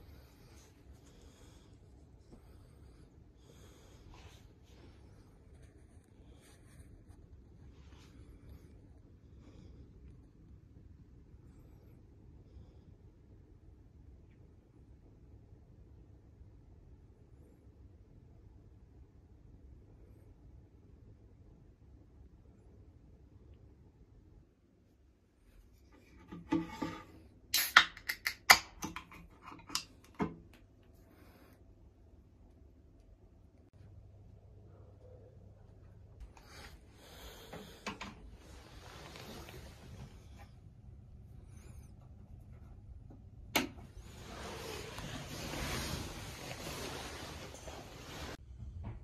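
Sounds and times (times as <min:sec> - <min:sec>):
can pull tab cracking: 0:27.6 - 0:29.9.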